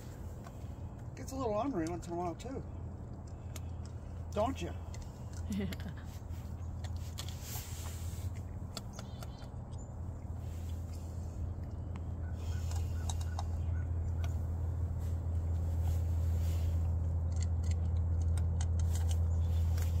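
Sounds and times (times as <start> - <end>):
cats crunching dry kibble: 0.0 - 20.0
steady low hum: 0.0 - 20.0.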